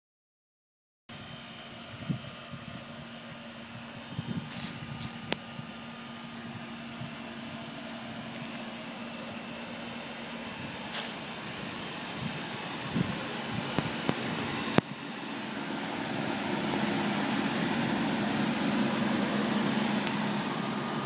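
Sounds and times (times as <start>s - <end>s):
outdoor fan rushing: 1.1s - 21.0s
sharp tick: 20.0s - 20.2s.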